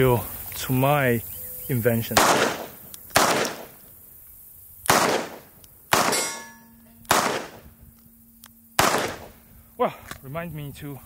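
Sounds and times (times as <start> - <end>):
metallic ring of steel target: 6.0 - 9.5.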